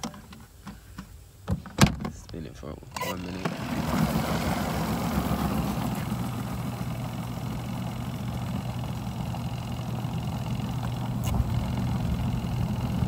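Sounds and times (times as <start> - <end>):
spin dryer motor humming: 3.0 - 13.0.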